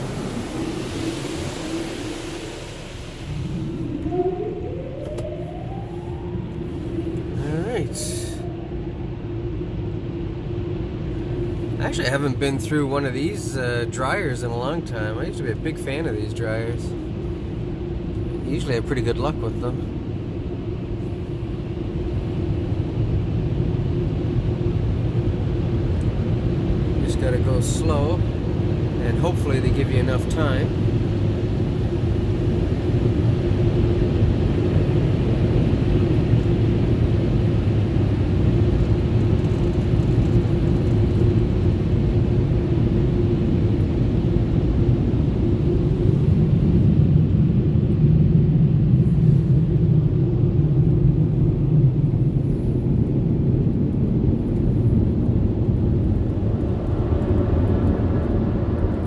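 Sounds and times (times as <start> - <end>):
car wash air blowers: 0.0 - 8.4.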